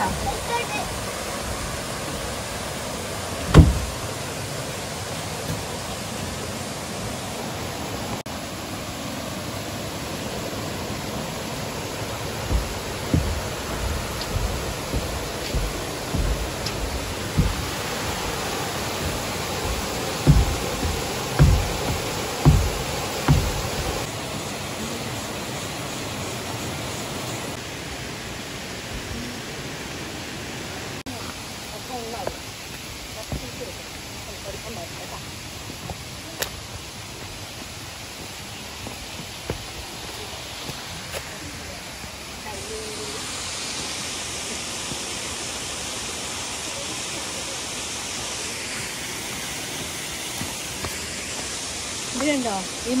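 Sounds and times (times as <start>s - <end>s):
waterfall and river rushing: 0.0s - 53.0s
low thumps: 3.4s - 4.1s, 12.3s - 24.1s.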